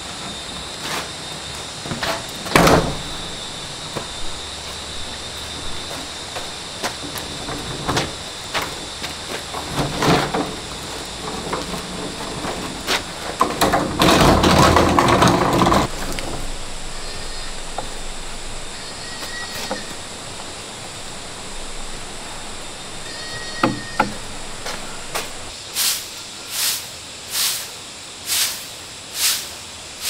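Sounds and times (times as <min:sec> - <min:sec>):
caster wheels rolling on concrete: 0:00.0 - 0:25.6
knocks: 0:23.5 - 0:25.5.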